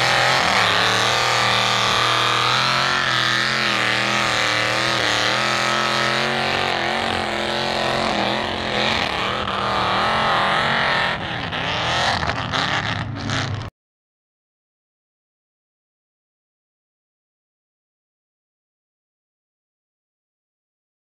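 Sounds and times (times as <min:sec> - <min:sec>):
truck engine revving in mud: 0:00.0 - 0:13.7.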